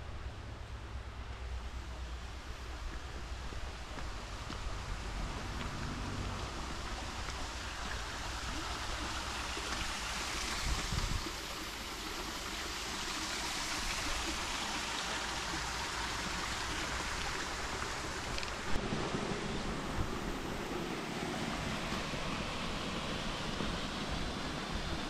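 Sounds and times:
water rushing in a channel: 0.0 - 25.0
wind buffeting microphone: 10.6 - 11.4, 18.6 - 25.0.

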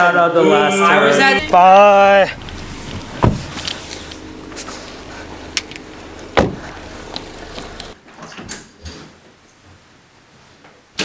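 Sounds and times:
car humming: 0.8 - 8.0
car doors shutting: 1.4 - 8.0.

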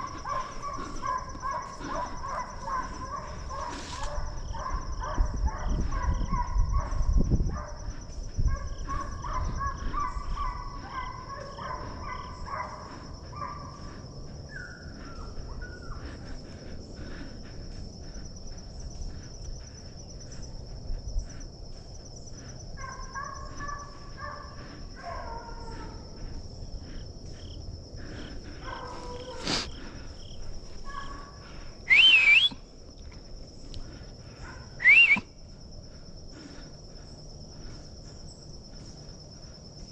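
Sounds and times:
distant hounds baying: 0.0 - 32.6, 33.6 - 39.9
sharp rising whistles: 31.9 - 32.6, 34.8 - 35.3.

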